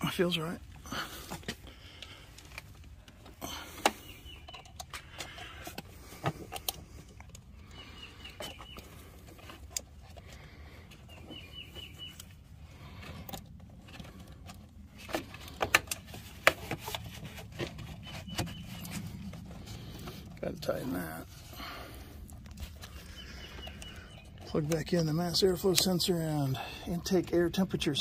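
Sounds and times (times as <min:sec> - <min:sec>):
bird chirping: 0:03.4 - 0:05.6, 0:07.6 - 0:09.6, 0:10.4 - 0:13.1, 0:17.2 - 0:20.1, 0:22.8 - 0:27.0.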